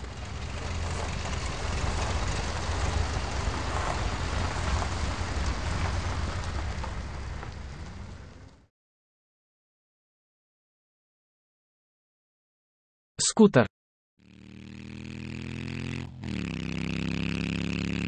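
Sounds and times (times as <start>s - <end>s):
truck engine rumbling: 0.0s - 8.7s, 13.2s - 18.0s.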